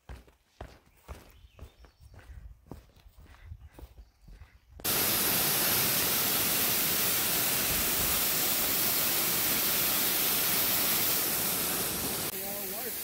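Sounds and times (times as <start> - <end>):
footsteps on dirt trail: 0.0 - 5.0
waterfall rushing into pool: 4.9 - 13.0.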